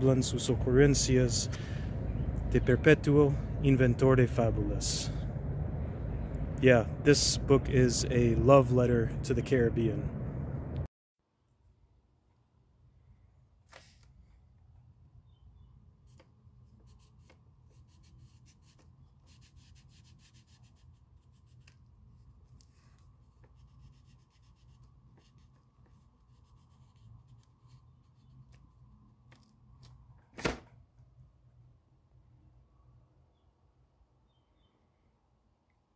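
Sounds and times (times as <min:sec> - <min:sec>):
crayon scratching on paper: 0:23.3 - 0:28.6.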